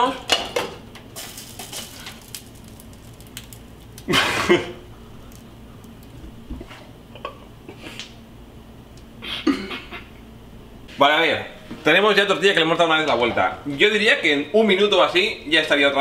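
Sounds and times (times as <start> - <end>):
man laughing: 4.1 - 4.8, 9.2 - 10.2.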